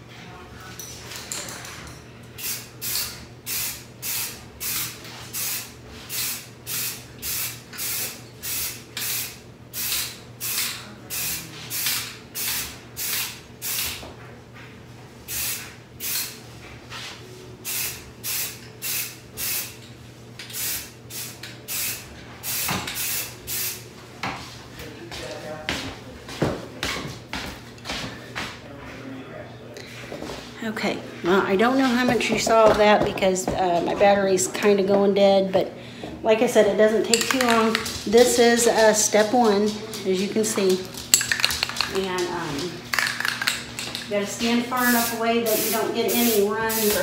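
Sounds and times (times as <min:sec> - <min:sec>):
aerosol can spraying bursts: 0:02.4 - 0:14.0, 0:15.3 - 0:16.4, 0:17.6 - 0:19.8, 0:20.5 - 0:23.8, 0:44.8 - 0:47.0.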